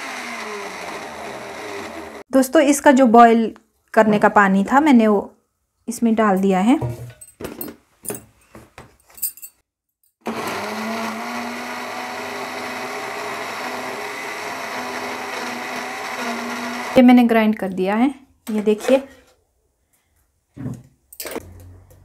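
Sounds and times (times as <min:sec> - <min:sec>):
mixer grinder running: 0:00.0 - 0:02.2, 0:10.2 - 0:17.0.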